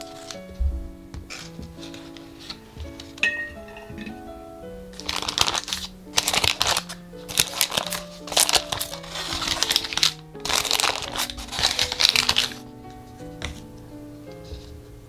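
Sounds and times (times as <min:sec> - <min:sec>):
baking paper crinkling: 0:00.0 - 0:00.5, 0:01.3 - 0:03.7, 0:04.9 - 0:13.7
light background music: 0:00.0 - 0:15.0.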